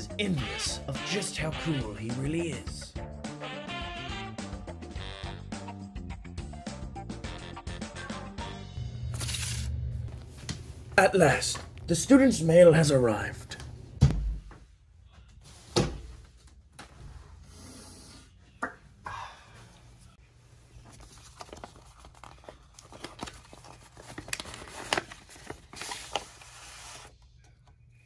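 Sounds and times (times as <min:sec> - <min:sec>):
paper rustling and sliding: 0:20.9 - 0:27.1.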